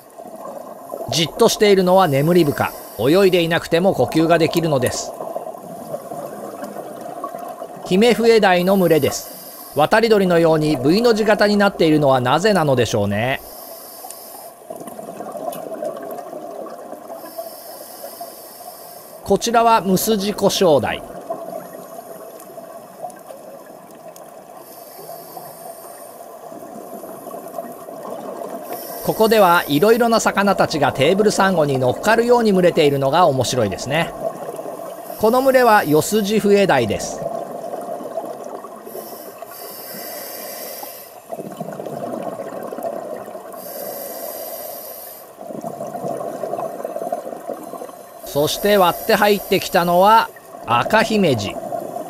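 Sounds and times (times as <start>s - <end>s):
faint high hiss: 0.0s - 6.0s, 8.4s - 12.6s, 28.6s - 31.8s, 38.8s - 41.3s, 47.7s - 51.6s
underwater watery rush: 0.0s - 52.0s
bubbling exhaled air: 2.0s - 3.4s, 37.2s - 52.0s
hissing regulator breaths: 2.0s - 3.4s, 8.6s - 9.9s, 13.4s - 14.7s, 17.2s - 19.2s, 24.6s - 26.3s, 28.6s - 30.1s, 34.9s - 36.0s, 38.8s - 41.3s, 43.5s - 45.4s, 47.6s - 50.1s
faint clicks: 14.0s - 15.7s.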